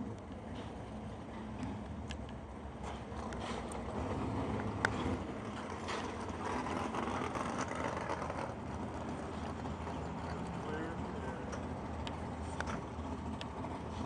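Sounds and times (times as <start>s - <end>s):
car engines idling: 0.4s - 14.0s.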